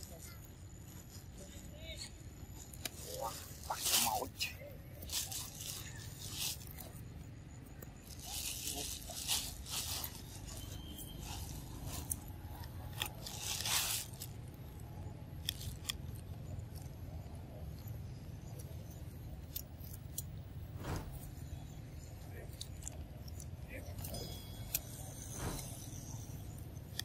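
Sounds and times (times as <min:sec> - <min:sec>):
monkeys crunching cucumbers: 0:02.4 - 0:20.6, 0:21.3 - 0:25.2
steady low rumble: 0:20.2 - 0:27.0.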